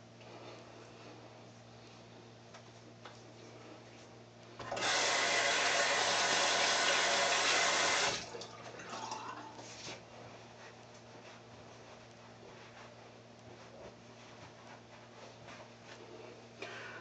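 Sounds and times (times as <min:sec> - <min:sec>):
sink tap running: 0:04.6 - 0:09.2.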